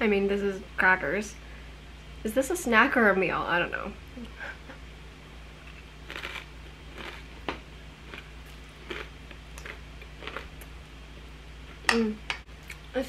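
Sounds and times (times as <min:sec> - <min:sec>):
crunching crackers and chewing: 0:05.7 - 0:07.4, 0:08.0 - 0:10.7.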